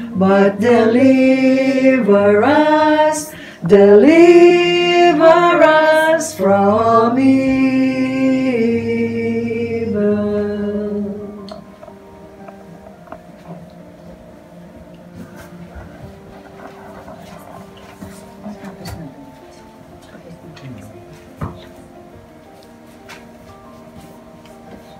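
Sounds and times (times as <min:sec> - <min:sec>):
group singing a hymn unaccompanied: 0:00.0 - 0:11.8.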